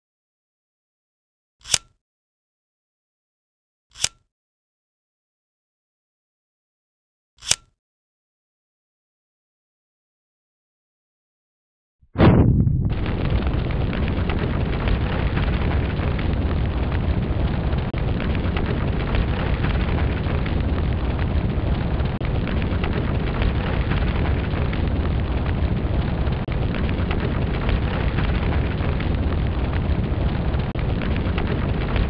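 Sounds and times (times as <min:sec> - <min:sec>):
large fire rumbling: 0:12.2 - 0:32.0.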